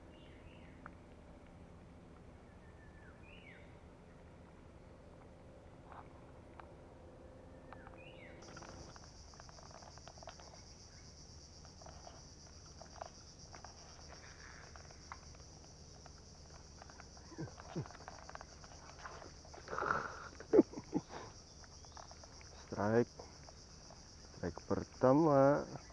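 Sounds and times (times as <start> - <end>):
insect chorus: 0.0 - 25.9
faint clicks: 7.7 - 11.0.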